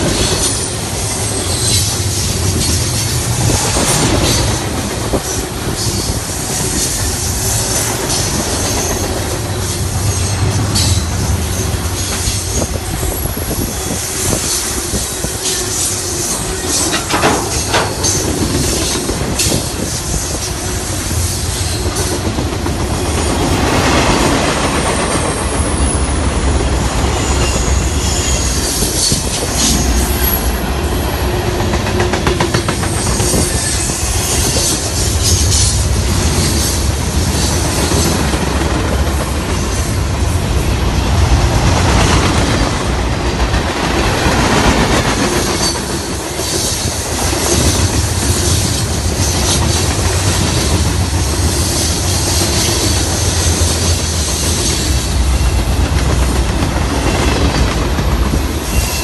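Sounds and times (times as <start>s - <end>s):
train wheels rumbling on rails: 0.0s - 59.0s
wheels clicking over rail joints: 14.3s - 20.5s.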